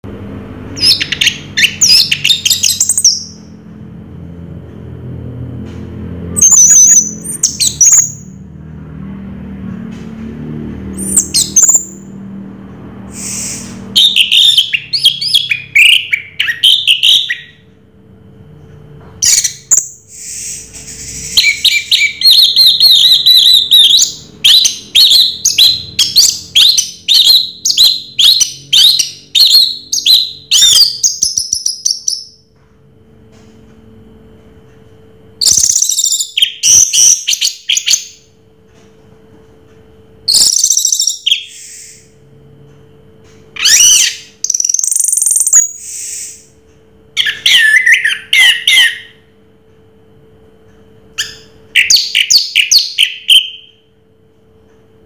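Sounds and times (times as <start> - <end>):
thrush singing whistled phrases: 13.2 - 17.6, 19.2 - 32.3.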